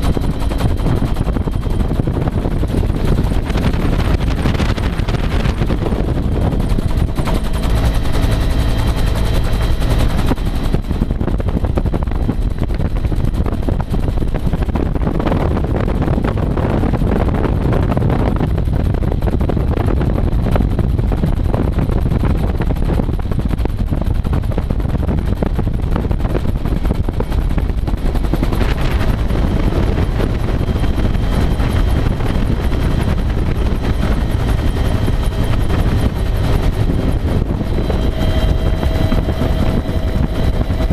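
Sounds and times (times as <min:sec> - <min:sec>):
high whine: 0:00.0 - 0:11.6, 0:28.0 - 0:40.9
helicopter rotor beating: 0:00.0 - 0:40.9
turbine engine rumble: 0:00.0 - 0:40.9.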